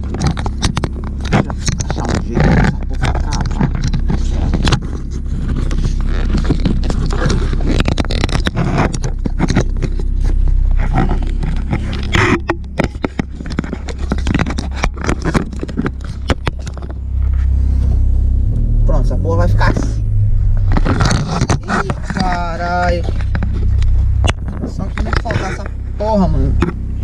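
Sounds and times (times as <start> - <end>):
sharp clicks and knocks: 0.0 - 17.6, 19.6 - 27.0
car engine idling: 0.0 - 27.0
camera mount scraping on plastic: 20.6 - 22.4.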